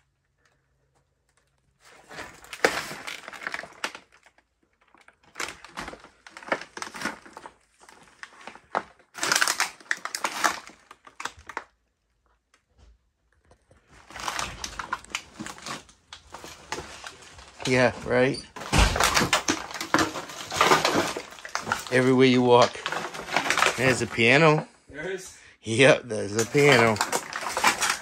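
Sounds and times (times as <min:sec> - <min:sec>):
debris crunching underfoot: 0:13.5 - 0:24.6, 0:26.3 - 0:28.0.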